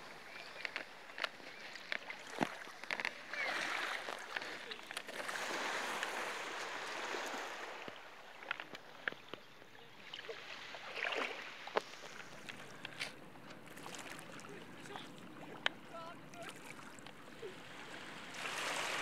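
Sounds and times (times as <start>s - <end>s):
shallow water sloshing and lapping: 0.0s - 19.0s
small splashes and drips: 10.0s - 13.1s.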